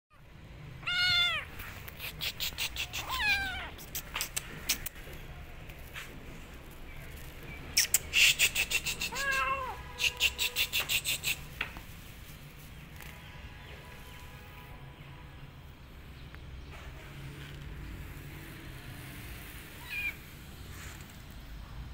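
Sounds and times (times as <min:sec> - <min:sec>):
kitten meowing: 0:00.8 - 0:04.0, 0:09.0 - 0:09.8, 0:19.8 - 0:20.2
quick sharp clicks: 0:03.8 - 0:05.2, 0:07.7 - 0:09.4.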